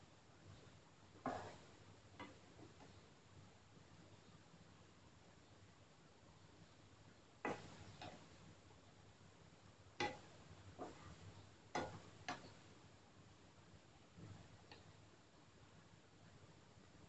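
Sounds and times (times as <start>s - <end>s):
spatula knocking and scraping pan: 1.3s - 3.0s, 7.5s - 8.4s, 10.0s - 12.7s.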